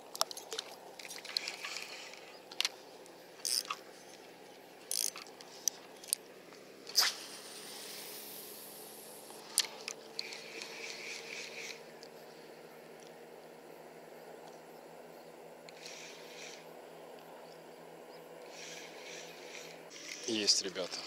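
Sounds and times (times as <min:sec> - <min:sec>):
faint steady whir: 0:00.0 - 0:21.0
fishing reel clicks: 0:03.4 - 0:03.8, 0:04.9 - 0:06.2
short rasps: 0:06.9 - 0:12.0, 0:15.7 - 0:16.8, 0:18.4 - 0:20.7
hiss: 0:07.0 - 0:09.6, 0:15.8 - 0:16.7, 0:18.5 - 0:20.3.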